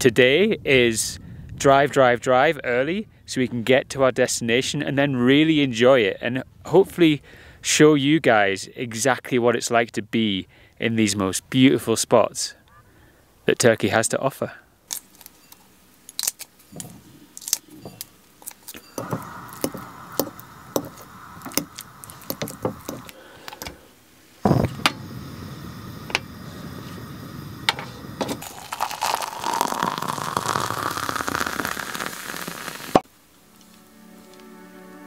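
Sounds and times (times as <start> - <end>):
gas burner hissing: 18.7 - 33.0.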